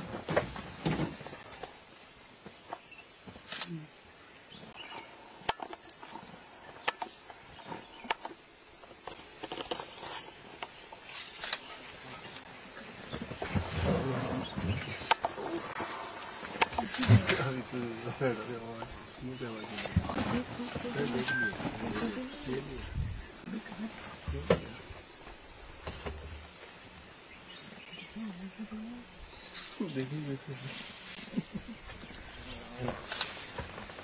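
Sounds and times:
high-pitched insect chorus: 0.0s - 34.0s.

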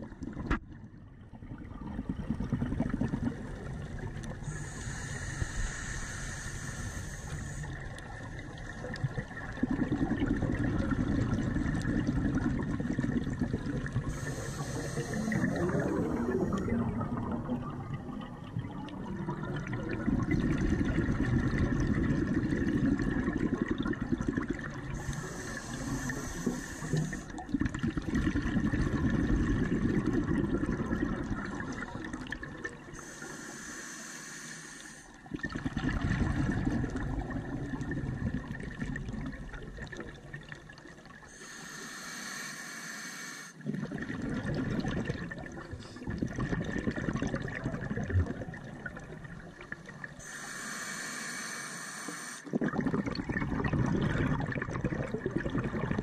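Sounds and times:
bubbling exhale underwater: 0.0s - 33.1s, 35.2s - 41.3s, 43.6s - 50.4s, 52.4s - 56.0s
hissing inhale through regulator: 4.3s - 8.1s, 13.9s - 16.9s, 24.9s - 27.5s, 32.8s - 35.3s, 41.2s - 43.8s, 49.8s - 52.7s.

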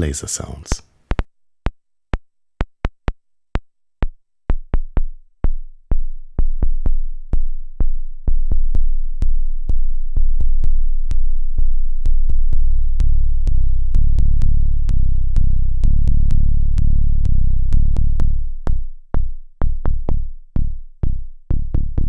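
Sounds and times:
steady low sub bass: 6.3s - 22.0s.

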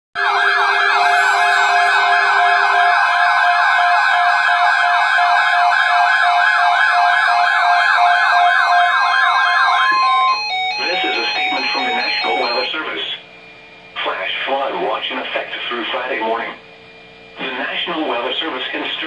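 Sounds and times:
warbling alarm sweeps: 0.2s - 12.8s
steady alarm tones: 0.2s - 13.2s.

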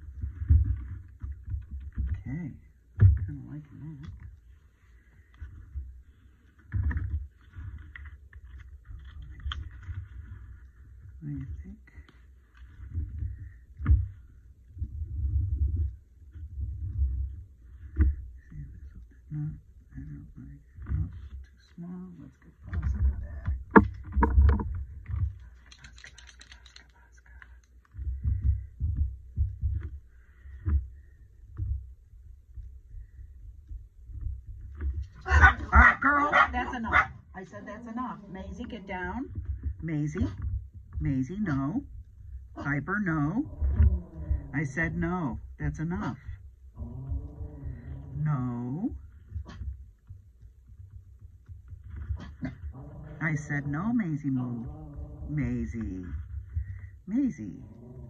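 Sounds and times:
faint papery rustle: 3.6s - 28.7s.

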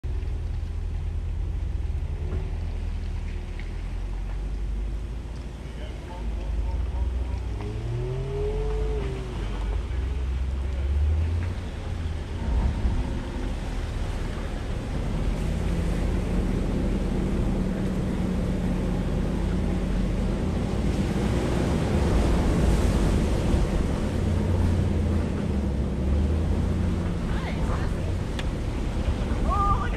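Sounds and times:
car engine rumbling: 0.0s - 29.9s
steady low hum: 9.2s - 29.5s.

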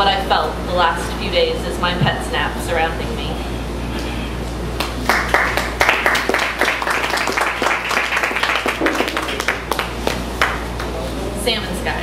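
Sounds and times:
audience clapping: 4.8s - 11.0s.

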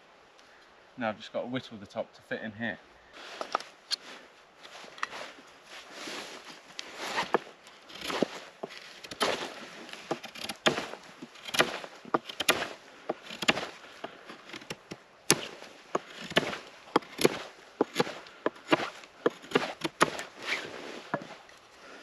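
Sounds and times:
knife shaving wood: 7.1s - 21.6s.

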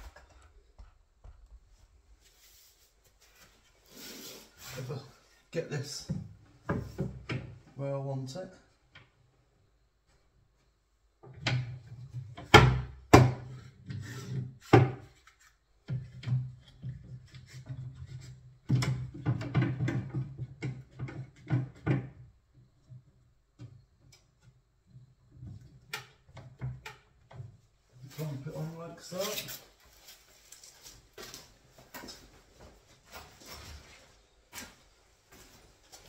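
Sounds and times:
cabinet panels knocking and rubbing: 6.1s - 7.6s, 11.2s - 15.1s, 15.9s - 22.3s.

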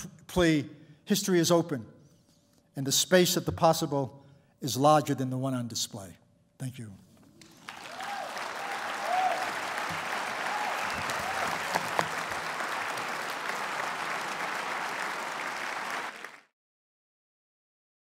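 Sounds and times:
audience applauding: 7.4s - 16.5s.

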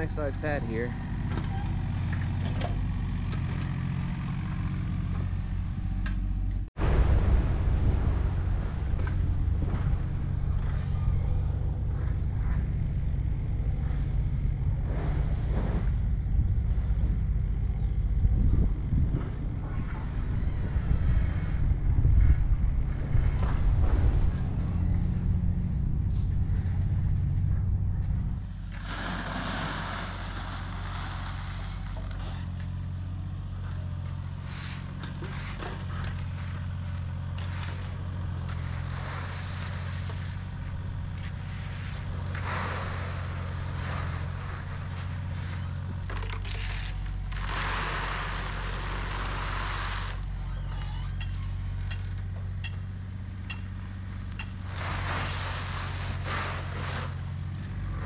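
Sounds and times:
diesel engine humming: 0.0s - 58.0s
gravel tipped and raked: 28.4s - 50.6s, 53.7s - 58.0s.

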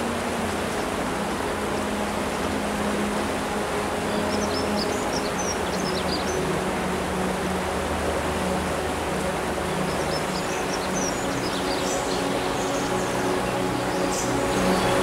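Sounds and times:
river water rushing: 0.0s - 15.0s
birds chirping: 4.0s - 6.5s, 9.7s - 15.0s.

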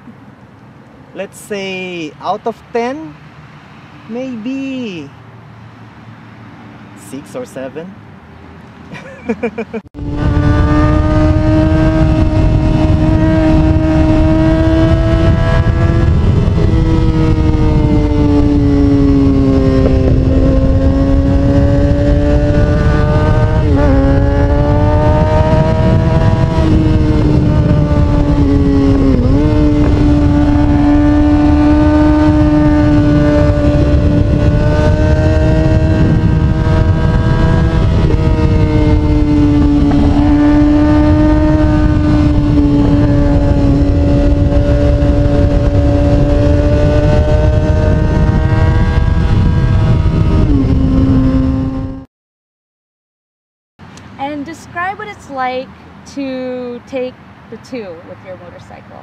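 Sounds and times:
low wind rumble: 9.8s - 52.1s
motorcycle engine running: 10.0s - 52.0s.

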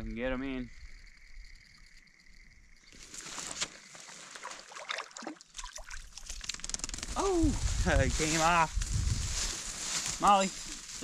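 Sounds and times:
water splashing: 2.9s - 7.0s.

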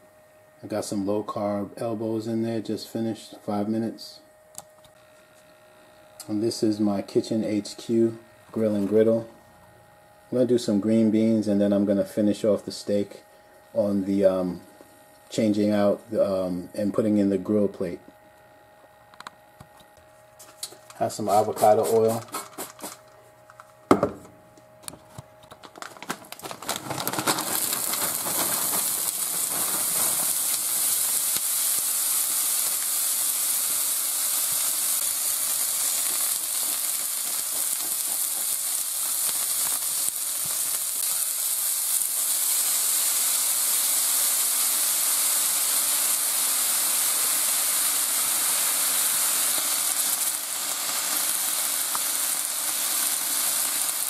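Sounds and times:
beans clicking onto griddle: 25.5s - 42.8s, 48.9s - 54.0s
green beans sizzling on a griddle: 26.2s - 54.0s.

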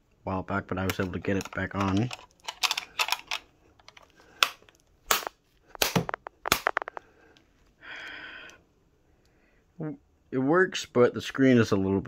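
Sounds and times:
plastic clicks and snaps: 0.9s - 7.1s.

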